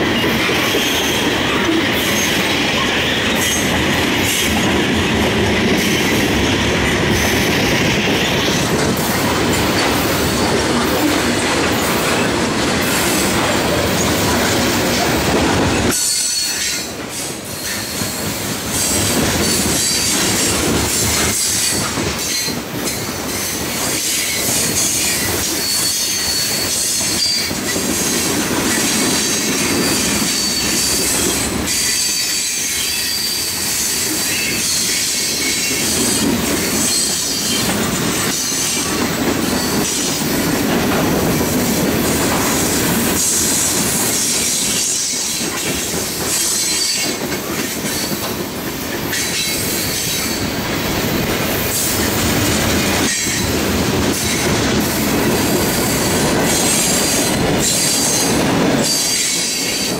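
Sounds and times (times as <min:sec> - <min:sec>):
train wheels rumbling on rail: 0:00.0 - 0:59.9
high wheel squeal: 0:15.8 - 0:18.2, 0:23.3 - 0:27.6, 0:28.7 - 0:37.7.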